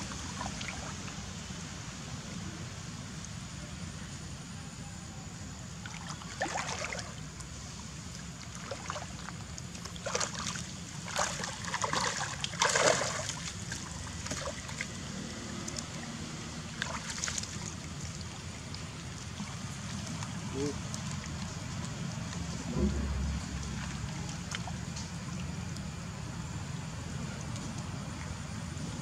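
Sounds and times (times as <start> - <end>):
splashing in muddy water: 5.8 - 7.4, 8.4 - 26.0
steady low rumble: 21.2 - 29.0.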